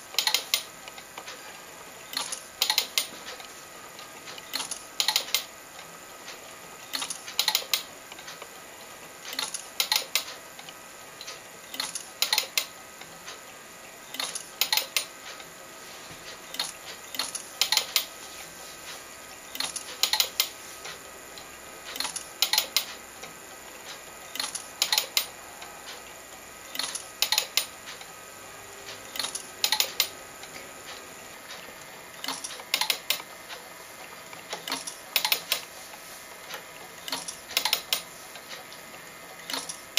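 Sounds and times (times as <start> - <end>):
sharp mechanical clicks: 0.1 - 1.4, 2.0 - 8.6, 9.2 - 13.4, 14.1 - 15.5, 16.3 - 18.1, 19.4 - 28.2, 28.8 - 35.8, 36.4 - 39.9.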